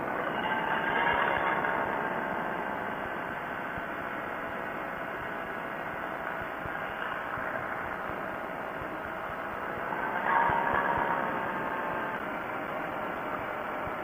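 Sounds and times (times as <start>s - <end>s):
ultralight engine and propeller: 0.0s - 14.0s.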